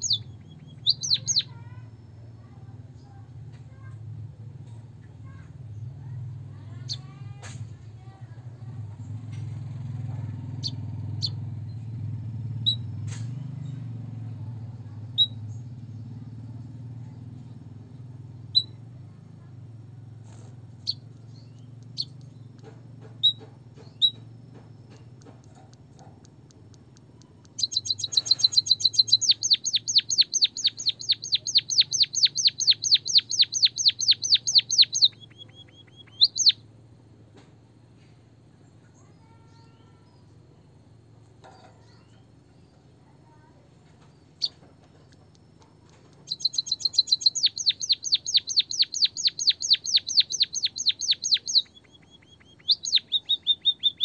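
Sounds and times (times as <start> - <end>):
bird chirping and trilling: 0.0 - 2.0, 10.5 - 11.7, 15.1 - 16.0, 18.4 - 18.8, 20.8 - 36.6, 44.2 - 54.0.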